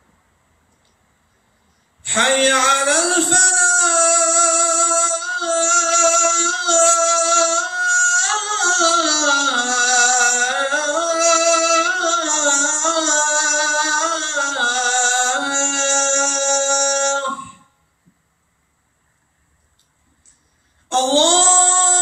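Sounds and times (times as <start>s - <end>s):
man chanting call to prayer: 2.1s - 17.7s, 20.9s - 22.0s.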